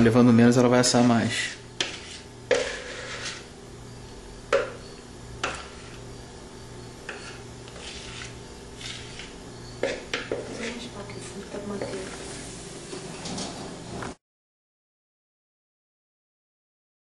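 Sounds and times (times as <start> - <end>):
cake pan knocking on countertop: 4.5 - 4.8.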